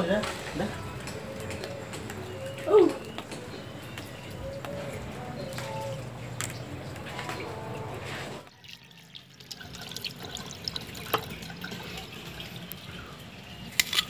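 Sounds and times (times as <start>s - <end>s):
tap water running into basin: 8.5s - 14.0s
water splashes and drips: 8.5s - 14.0s.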